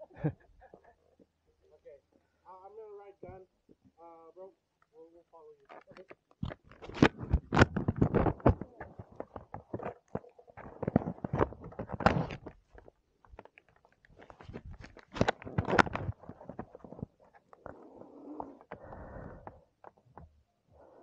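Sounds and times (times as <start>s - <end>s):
rustling: 5.6s - 20.2s.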